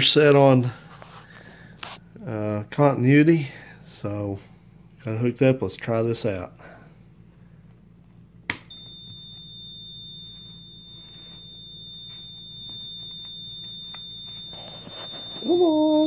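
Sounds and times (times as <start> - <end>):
multimeter continuity beep: 8.7 - 16.0.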